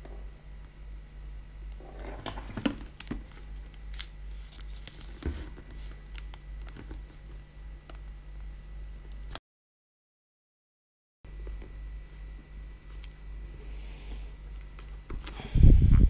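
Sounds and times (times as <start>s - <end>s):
steady low hum: 0.0s - 9.4s, 11.3s - 16.0s
sticker film crinkling and rustling: 2.3s - 7.4s.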